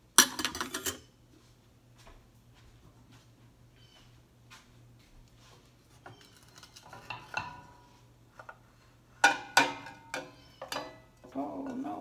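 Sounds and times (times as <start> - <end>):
metallic pan clanks: 6.9 - 7.8, 9.2 - 11.1.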